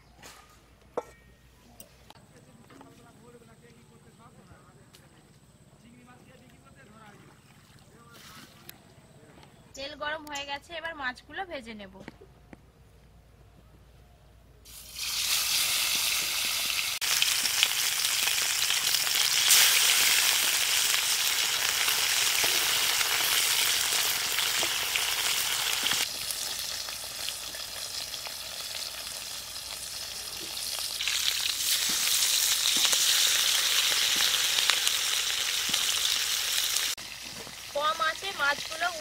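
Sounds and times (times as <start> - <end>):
fish sizzling in hot oil: 14.7 - 39.0.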